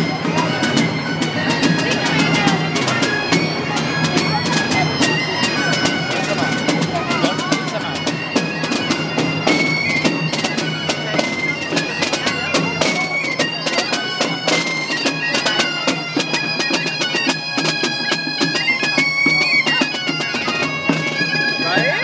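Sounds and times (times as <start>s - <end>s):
bagpipes playing a tune: 0.0s - 22.0s
small drums beating: 0.0s - 22.0s.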